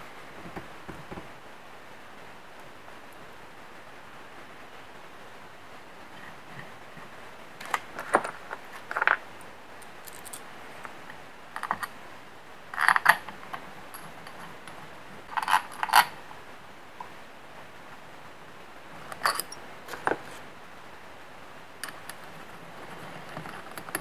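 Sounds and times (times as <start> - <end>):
bolts clinking on metal: 19.1 - 20.1.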